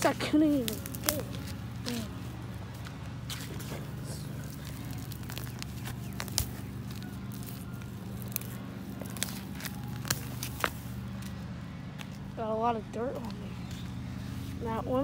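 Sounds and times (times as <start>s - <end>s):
steady low hum: 0.0s - 15.0s
sandal footsteps on concrete: 8.8s - 12.4s.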